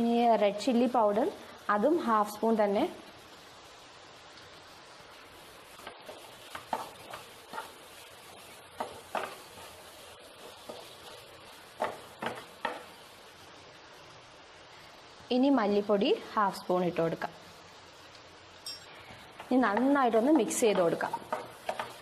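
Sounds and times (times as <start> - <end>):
faint sizzle: 0.0 - 22.0
spatula scraping frying pan: 5.7 - 13.0, 19.1 - 22.0.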